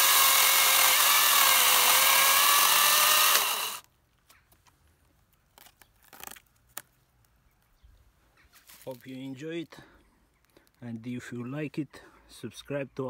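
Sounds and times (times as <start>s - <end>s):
chainsaw cutting log: 0.0s - 3.8s
chainsaw spinning down: 0.0s - 3.8s.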